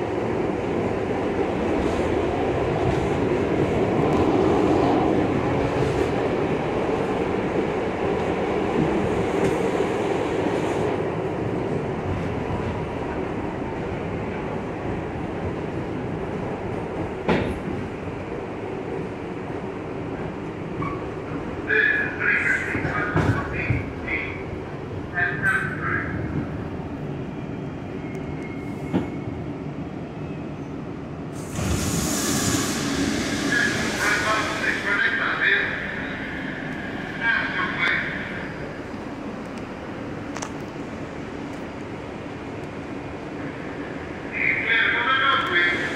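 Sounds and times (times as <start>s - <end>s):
subway wheels rumbling on rail: 0.0s - 45.9s
hissing rush: 31.4s - 37.3s.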